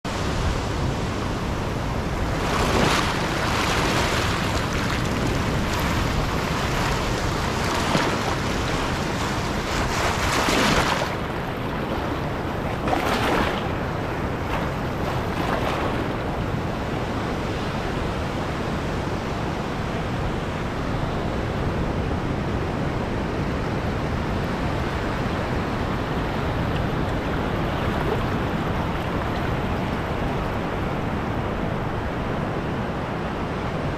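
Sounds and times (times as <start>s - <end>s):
waves breaking: 0.1s - 20.2s, 24.9s - 32.9s
foamy water washing around rock: 2.0s - 16.2s.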